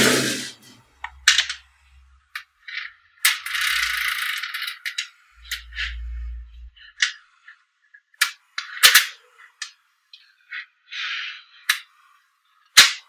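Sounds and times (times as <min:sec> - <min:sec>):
magnetic balls rattling: 0:00.0 - 0:07.2
magnetic balls clicking together: 0:02.3 - 0:06.0.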